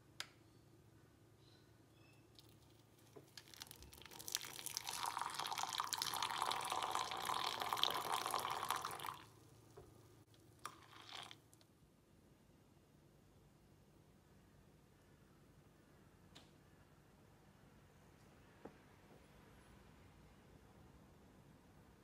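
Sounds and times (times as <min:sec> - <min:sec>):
click: 0:00.2 - 0:00.4, 0:16.3 - 0:16.6
hot water pouring into mug: 0:03.2 - 0:09.4, 0:10.6 - 0:11.4.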